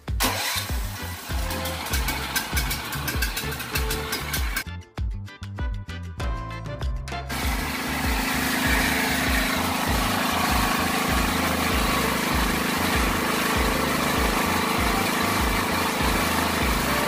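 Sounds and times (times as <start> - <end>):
petrol generator running: 0.0 - 4.6, 7.3 - 17.0.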